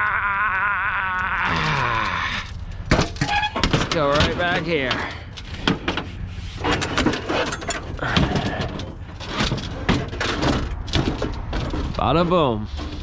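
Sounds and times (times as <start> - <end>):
steady low rumble: 0.0 - 13.0
scrap metal knocks and clanks: 2.7 - 13.0.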